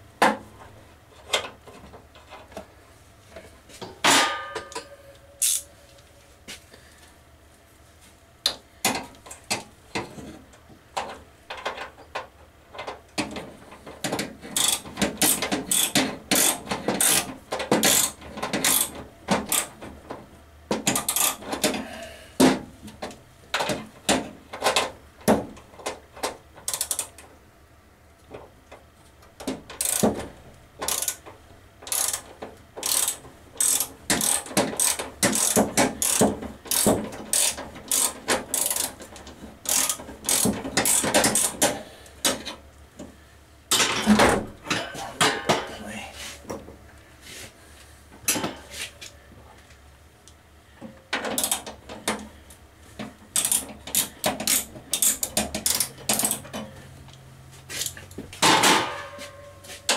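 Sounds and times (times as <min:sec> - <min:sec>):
ratchet wrench clicking: 0:05.4 - 0:05.7, 0:14.6 - 0:19.7, 0:20.9 - 0:21.4, 0:26.7 - 0:27.2, 0:29.8 - 0:30.1, 0:30.8 - 0:31.2, 0:31.8 - 0:39.0, 0:39.6 - 0:41.7, 0:51.4 - 0:51.7, 0:53.4 - 0:56.4.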